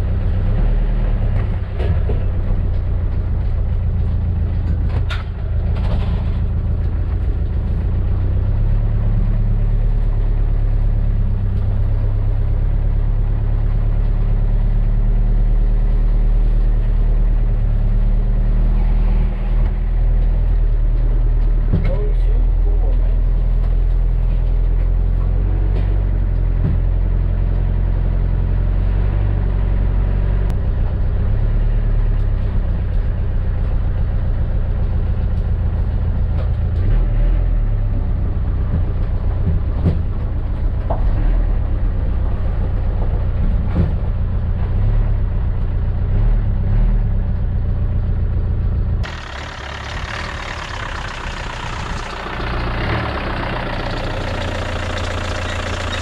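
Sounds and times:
truck engine droning: 0:00.0 - 0:56.0.

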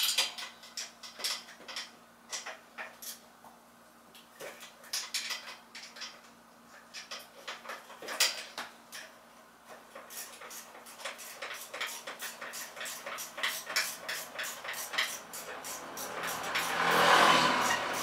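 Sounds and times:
hand tools clicking on metal: 0:09.9 - 0:17.0.

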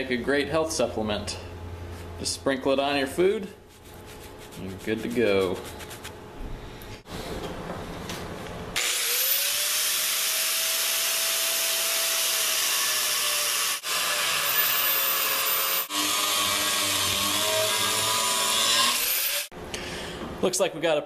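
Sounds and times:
angle grinder cutting steel: 0:08.8 - 0:19.5.

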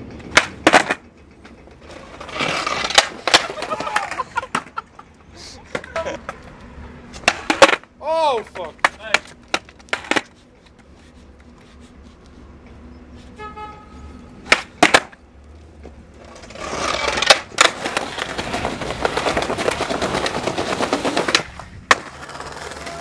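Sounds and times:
skateboard clacks: 0:00.0 - 0:04.9, 0:05.6 - 0:10.9, 0:14.4 - 0:15.2, 0:15.8 - 0:23.0
skateboard wheels rolling: 0:00.0 - 0:12.8, 0:14.4 - 0:23.0.

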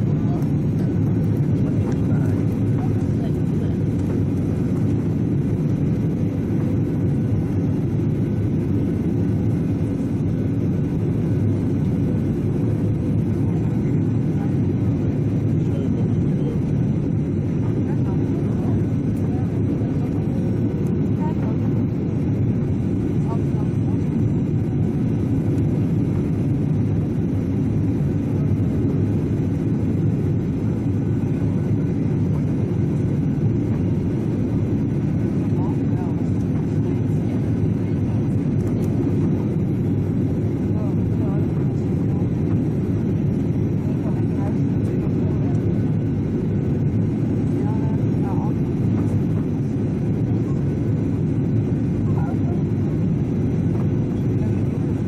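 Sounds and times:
jet engines: 0:00.0 - 0:55.0.

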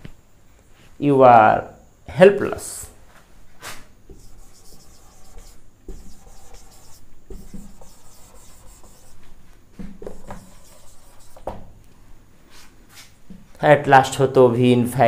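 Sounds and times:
marker squeaking on whiteboard: 0:04.1 - 0:09.3, 0:10.0 - 0:11.7.

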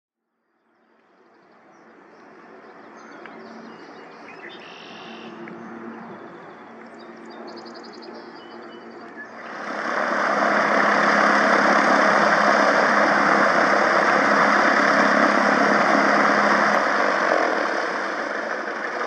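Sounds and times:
steady low drone: 0:05.2 - 0:19.0.

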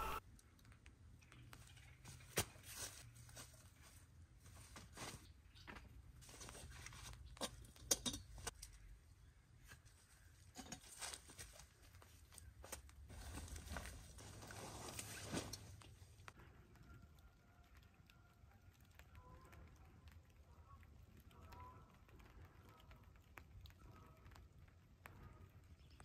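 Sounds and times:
rustle of camp chair: 0:09.6 - 0:16.0
rustling on dry leaves: 0:09.7 - 0:15.9.

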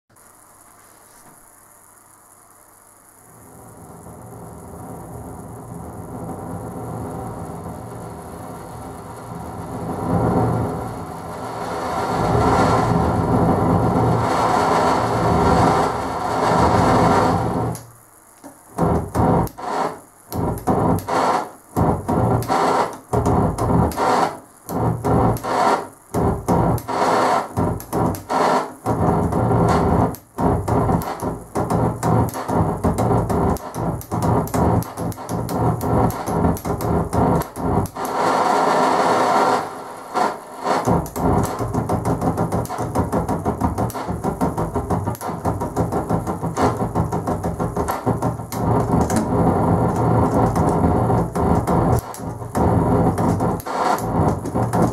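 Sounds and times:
turntable scratching: 0:00.1 - 0:54.9.

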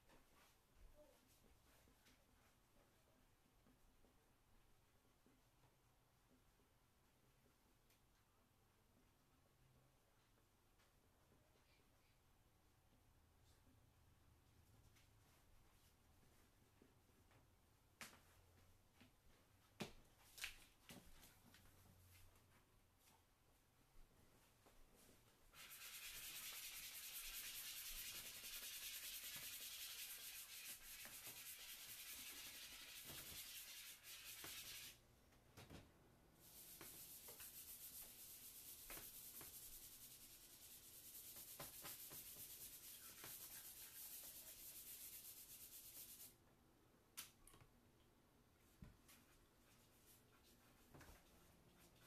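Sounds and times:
charcoal scratching on paper: 0:25.6 - 0:35.0, 0:36.4 - 0:46.3.

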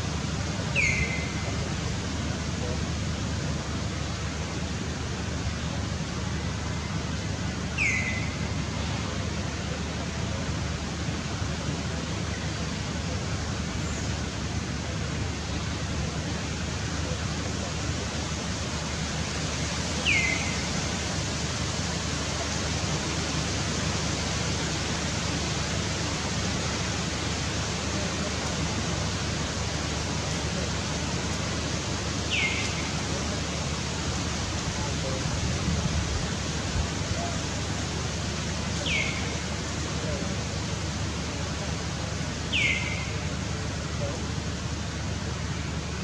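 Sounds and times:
forest ambience hiss: 0:00.0 - 0:46.0
short high falling calls: 0:00.7 - 0:01.6, 0:38.8 - 0:39.6, 0:42.5 - 0:43.3.

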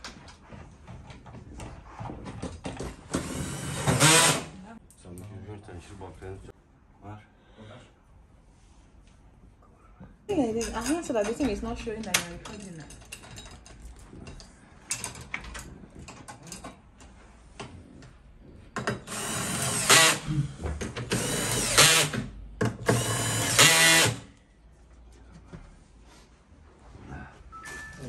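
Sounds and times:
power drill whirring: 0:03.1 - 0:04.6, 0:19.1 - 0:20.2, 0:21.1 - 0:22.2, 0:22.8 - 0:24.3.

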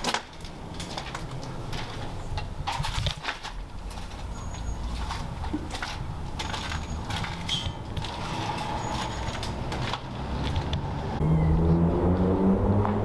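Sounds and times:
light clicks and crunches: 0:00.0 - 0:08.3
distant traffic rumble: 0:00.0 - 0:13.0.

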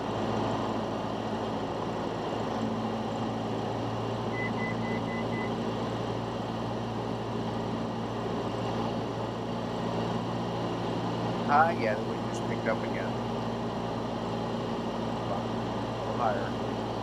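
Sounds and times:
propeller plane engine in cabin: 0:00.0 - 0:17.0
short high beeps: 0:04.3 - 0:05.5.

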